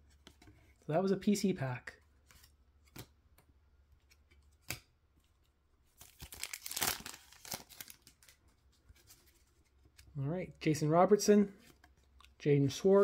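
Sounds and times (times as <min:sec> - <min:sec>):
card pack wrapper crinkling: 0:06.0 - 0:08.4.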